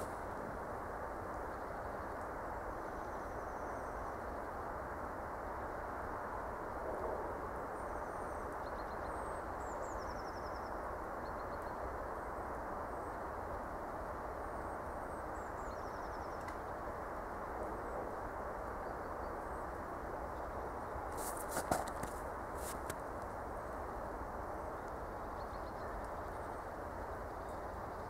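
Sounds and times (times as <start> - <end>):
low outdoor background rush: 0.0 - 28.0
songbirds chirping faintly: 17.7 - 28.0
sharp clicks and rustles: 21.2 - 23.0.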